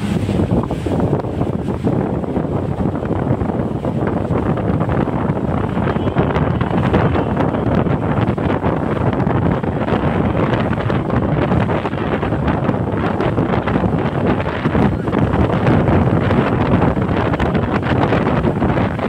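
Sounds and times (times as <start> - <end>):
boat engine: 0.0 - 19.0
rush of churning wake: 0.0 - 19.0
wind buffeting microphone: 0.0 - 19.0.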